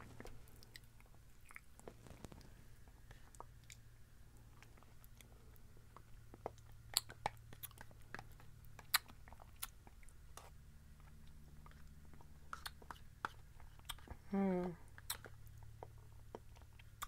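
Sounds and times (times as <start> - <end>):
low steady hum: 0.0 - 17.0
mouth clicks and smacks eating: 4.6 - 14.2, 15.0 - 17.0.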